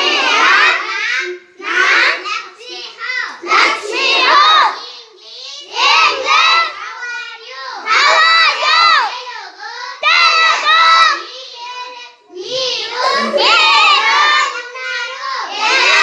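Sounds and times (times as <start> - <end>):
children reciting in unison: 0.0 - 16.0
teacher's voice leading: 11.5 - 15.4.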